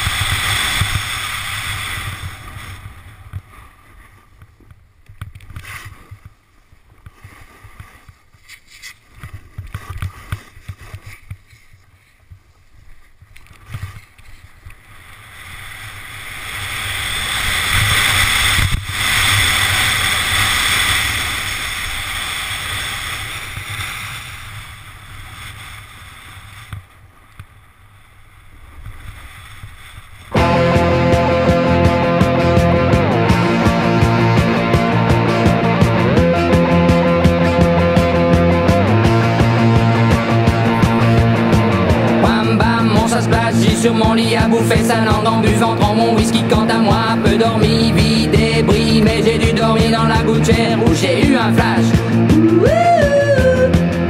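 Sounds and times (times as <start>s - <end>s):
wind rushing over microphone: 0.0s - 3.9s, 14.9s - 26.8s
snowboard edges scraping snow: 0.0s - 4.4s, 5.6s - 30.4s.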